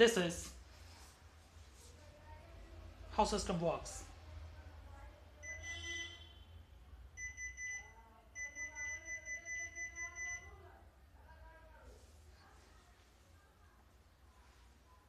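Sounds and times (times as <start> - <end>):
high-pitched buzzer beeps: 5.4 - 6.4, 7.2 - 10.5.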